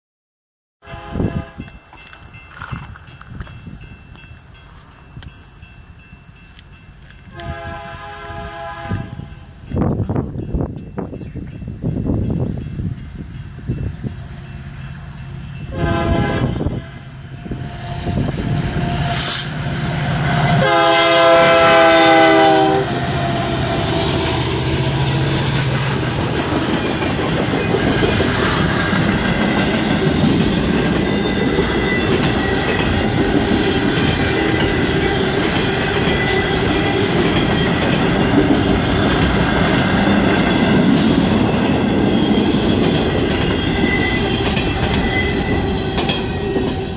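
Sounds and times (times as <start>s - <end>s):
locomotive air horn blast: 0.8s - 1.7s, 7.3s - 9.4s, 15.7s - 18.2s, 18.8s - 25.8s
train wheels rumbling on rail: 0.9s - 46.9s
clickety-clack over rail joints: 25.4s - 46.9s.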